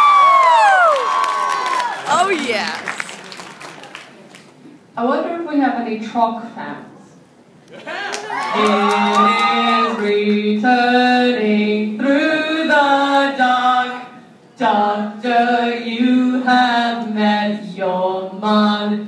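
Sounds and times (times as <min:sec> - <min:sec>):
voices singing unaccompanied: 0:08.5 - 0:19.0.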